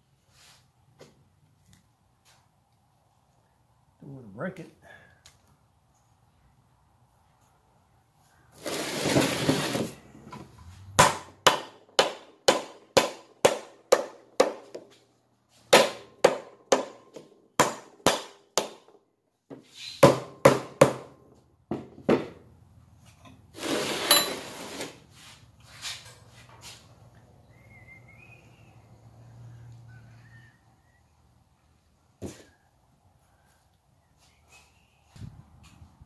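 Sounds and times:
scraping rustle: 8.5s - 10.8s, 23.5s - 26.9s.

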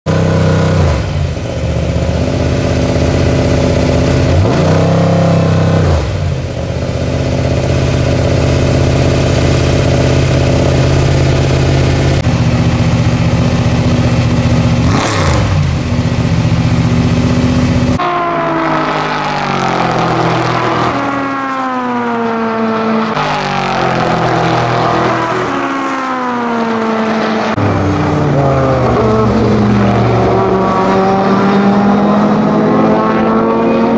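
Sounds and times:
car engine idling loudly: 0.0s - 21.0s
race car accelerating through gears: 14.8s - 15.7s, 18.0s - 33.9s.

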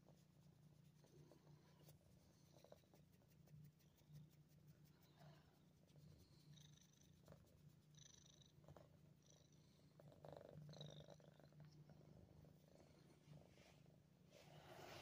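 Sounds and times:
cat purring: 0.0s - 15.0s
soft rustles: 12.4s - 15.0s.

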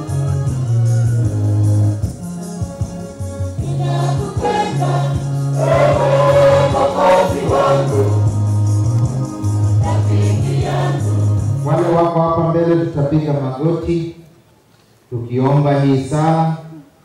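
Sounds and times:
choir singing a hymn: 0.0s - 12.2s
keyboard accompaniment: 0.0s - 12.6s.

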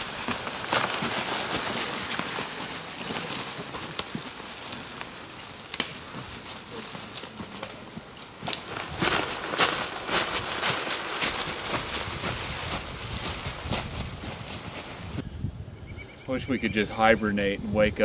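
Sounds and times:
dry leaves crunching and rustling: 0.0s - 15.2s
footsteps through leaf litter: 0.0s - 15.2s
sharp crack: 5.6s - 6.1s.

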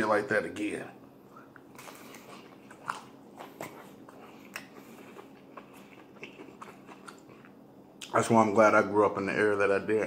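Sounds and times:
chewing with wet mouth sounds: 1.4s - 8.1s.

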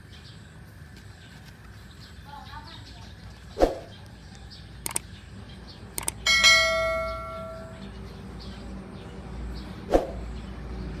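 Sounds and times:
quick mouse clicks: 4.8s - 5.1s, 6.0s - 6.2s
notification bell ding: 6.3s - 7.8s.

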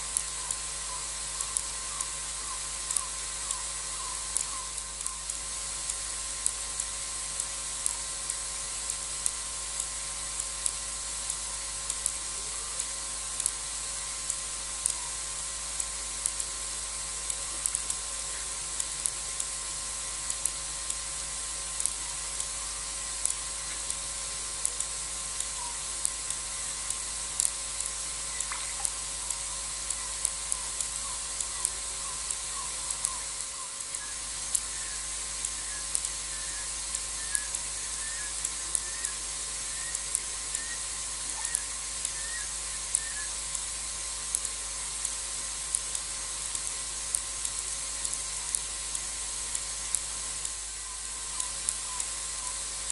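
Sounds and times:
night insect chorus hiss: 0.0s - 52.9s
short sharp ticks: 28.4s - 31.0s.

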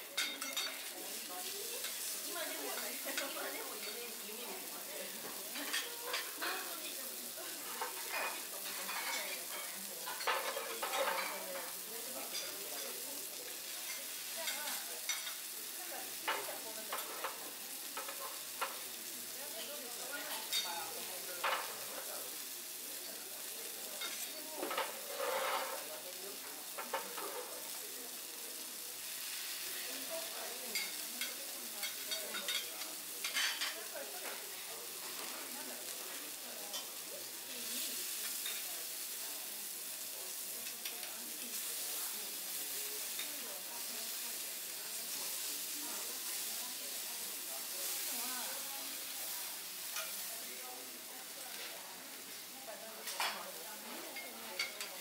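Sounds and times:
food sizzling on griddle: 0.0s - 55.0s
metal spatulas scraping and tapping: 0.2s - 1.2s, 7.8s - 11.5s, 24.0s - 25.9s, 26.8s - 27.5s, 49.9s - 50.2s.

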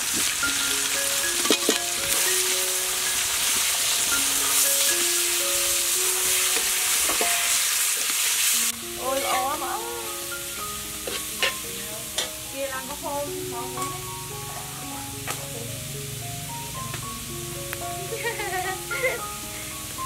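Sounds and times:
food sizzling in a wok: 0.0s - 20.0s
metal spatula stirring: 1.1s - 12.6s.

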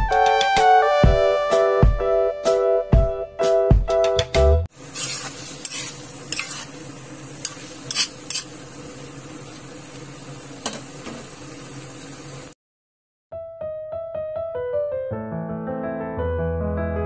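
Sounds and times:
food sizzling in a pan: 4.7s - 12.6s
utensil scraping a pan: 4.8s - 8.6s.

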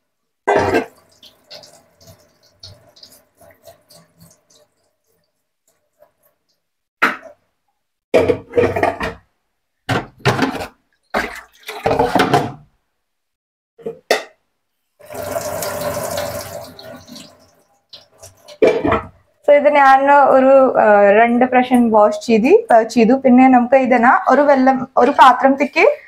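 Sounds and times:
water splashing in a colander: 0.5s - 6.6s, 10.3s - 12.5s, 15.0s - 19.4s.

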